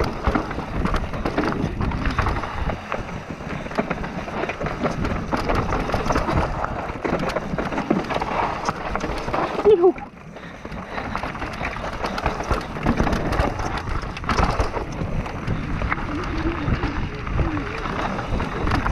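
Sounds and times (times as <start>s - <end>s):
bike clattering over bumps: 0.0s - 18.9s
tyres crunching over stones: 0.0s - 18.9s
wind rushing on microphone: 12.4s - 18.9s.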